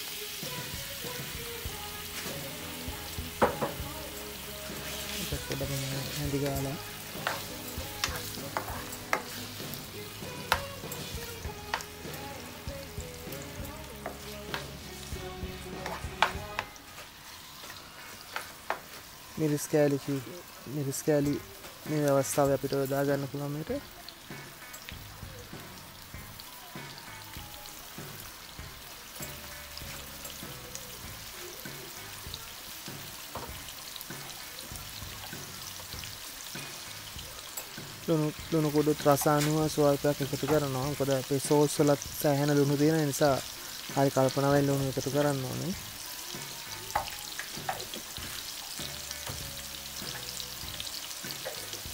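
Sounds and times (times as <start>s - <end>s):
meat sizzling in hot oil: 0.0s - 51.9s
spatula knocking against pan: 3.4s - 3.9s.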